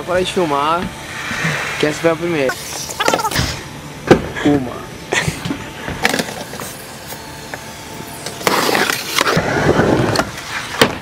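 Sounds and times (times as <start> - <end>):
skateboard wheels rolling on plywood: 8.3 - 11.0.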